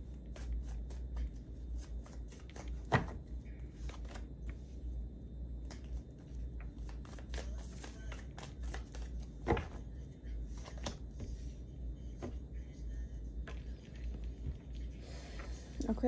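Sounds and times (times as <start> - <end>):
cards shuffling: 0.2 - 4.7, 5.6 - 9.8, 10.5 - 11.3
cards snapping: 0.3 - 2.9, 6.7 - 9.8.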